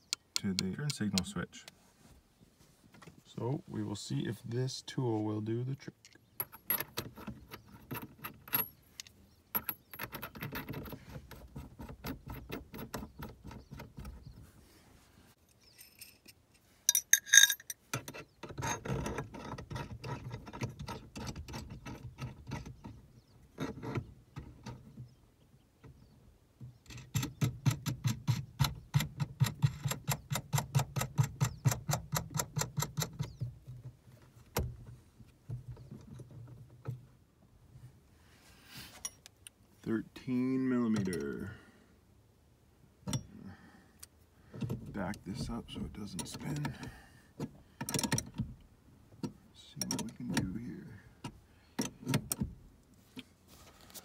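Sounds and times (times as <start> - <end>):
metal tool clinking and rattling: 6.0 - 14.1, 15.5 - 22.9
keys jangling: 16.9 - 17.8
sharp metal clatter: 16.9 - 17.9.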